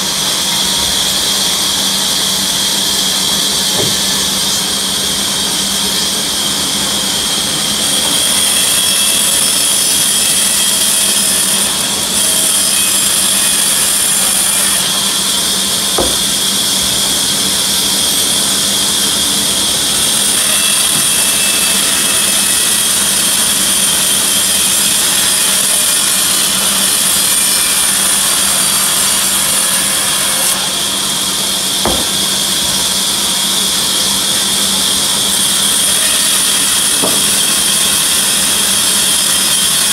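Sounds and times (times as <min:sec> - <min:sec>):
band saw running: 0:00.0 - 0:39.9
blade cutting wood: 0:01.8 - 0:05.0, 0:07.8 - 0:34.5, 0:35.4 - 0:39.9
short knocks: 0:03.8 - 0:04.3, 0:16.0 - 0:17.1, 0:31.8 - 0:32.8, 0:37.0 - 0:37.4.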